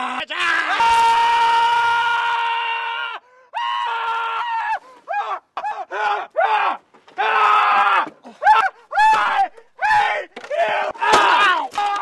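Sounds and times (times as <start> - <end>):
man screaming: 0.0 - 4.8.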